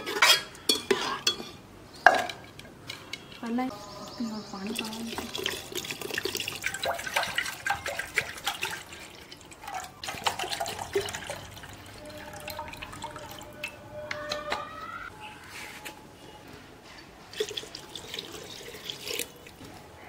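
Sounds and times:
water pouring and splashing: 0:04.7 - 0:13.7, 0:17.3 - 0:19.6.

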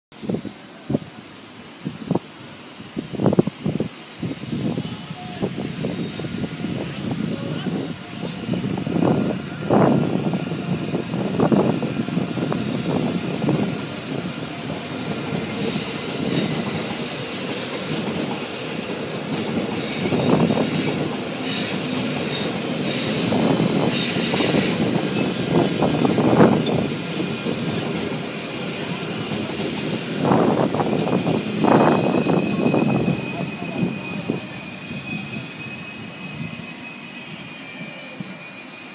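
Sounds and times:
train wheels rumbling on rail: 0:00.2 - 0:38.9
high wheel squeals: 0:04.2 - 0:07.9, 0:08.5 - 0:17.5, 0:19.8 - 0:25.4, 0:30.2 - 0:38.9.

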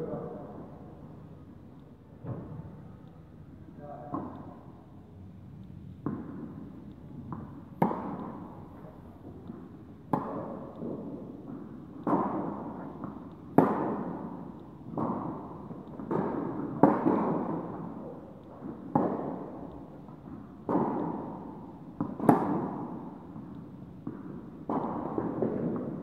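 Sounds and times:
tennis rackets hitting ball: 0:04.1 - 0:04.6, 0:06.0 - 0:26.0
tennis ball bouncing: 0:04.1 - 0:04.7, 0:06.0 - 0:26.0.

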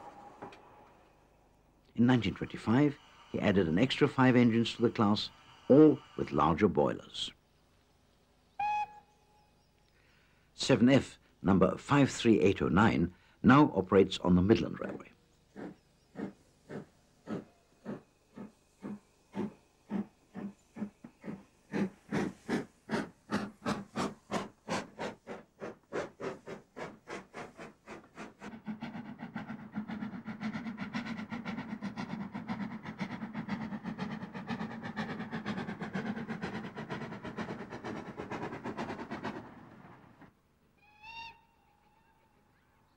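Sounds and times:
steam locomotive exhaust chuffing: 0:00.0 - 0:06.8, 0:15.6 - 0:40.4.

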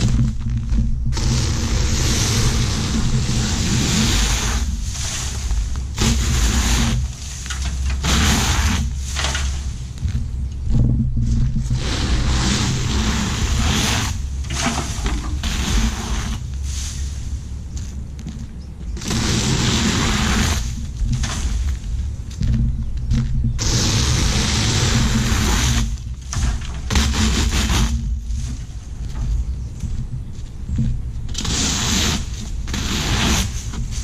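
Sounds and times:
leaf blower engine drone: 0:00.0 - 0:10.1, 0:11.6 - 0:17.9, 0:18.9 - 0:22.5, 0:23.6 - 0:28.6
rushes of air: 0:00.0 - 0:18.2, 0:18.9 - 0:34.0.

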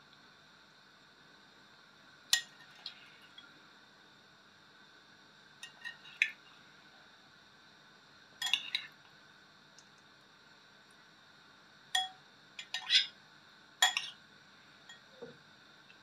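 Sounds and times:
metal teaspoon clinking against dish: 0:12.0 - 0:13.1, 0:13.8 - 0:14.2.

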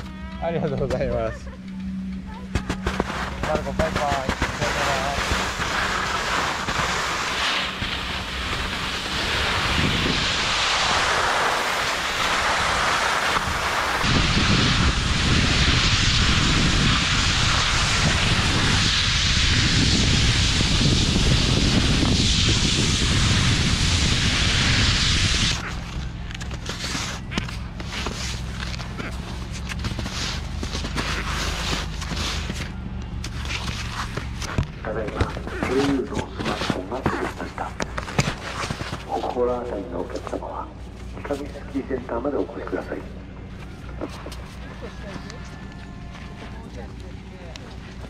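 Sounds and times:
wind rumbling on microphone: 0:02.7 - 0:25.9
skis hissing on snow: 0:02.8 - 0:32.7, 0:33.3 - 0:40.4.

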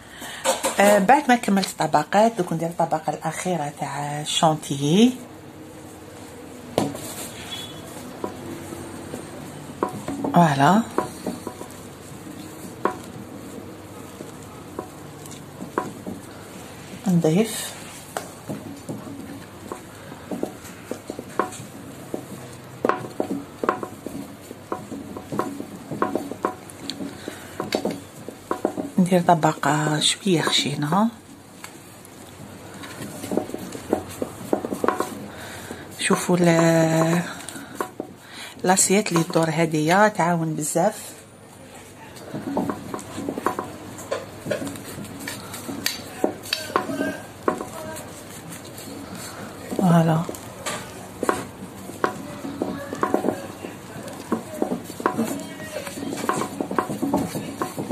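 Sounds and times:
spatula scraping and tapping metal: 0:06.8 - 0:29.7, 0:32.7 - 0:39.6, 0:42.2 - 0:57.9.

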